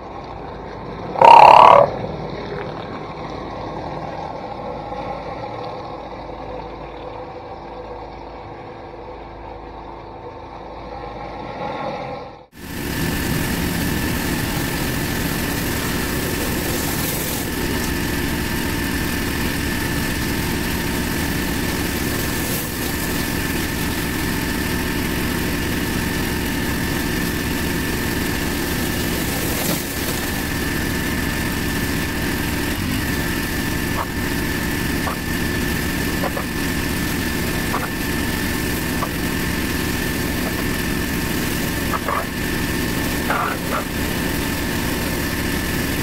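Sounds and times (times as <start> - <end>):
pressure washer whining drone: 0.0 - 46.0
water spray hiss: 12.6 - 46.0.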